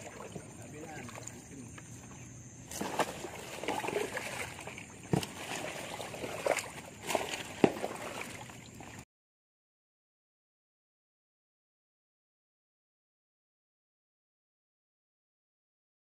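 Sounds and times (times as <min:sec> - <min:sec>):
water sloshing: 0:00.0 - 0:09.0.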